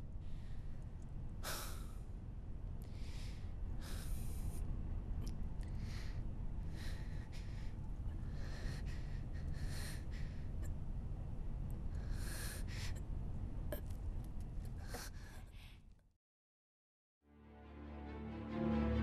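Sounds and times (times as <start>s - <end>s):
steady low rumble: 0.0s - 15.8s
person breathing heavily: 1.4s - 2.1s, 2.8s - 4.7s, 5.6s - 10.7s, 11.9s - 13.0s.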